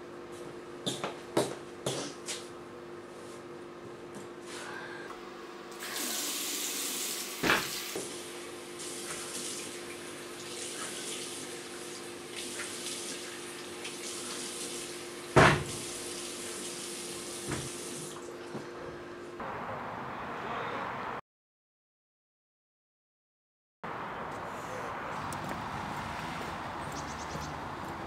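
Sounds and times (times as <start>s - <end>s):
tap water running into sink: 8.8s - 18.2s.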